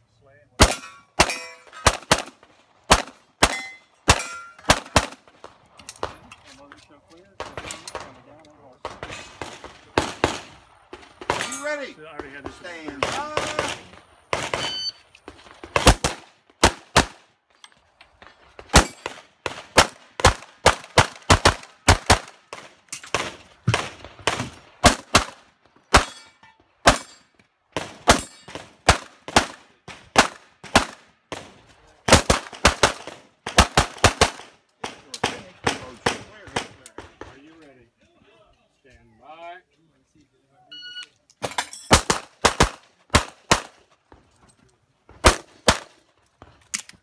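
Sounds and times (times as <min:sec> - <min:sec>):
pistol shots: 0:00.6 - 0:06.2, 0:13.0 - 0:14.9, 0:15.6 - 0:17.2, 0:18.7 - 0:26.2, 0:27.8 - 0:31.5, 0:32.1 - 0:37.2, 0:41.9 - 0:43.8, 0:45.2 - 0:46.0.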